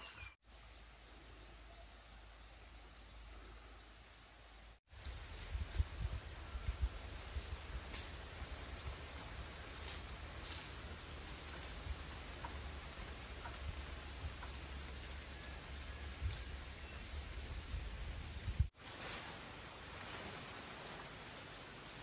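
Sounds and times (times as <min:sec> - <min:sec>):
faint rustles and ticks: 0:05.0 - 0:17.3
small bird chirping: 0:10.5 - 0:11.7, 0:12.4 - 0:13.6.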